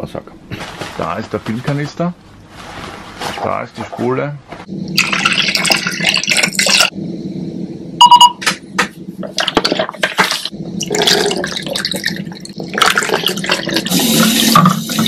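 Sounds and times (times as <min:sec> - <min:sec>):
liquid pouring into plastic tank: 0:05.0 - 0:06.9, 0:09.3 - 0:15.0
short electronic beep: 0:08.0 - 0:08.4.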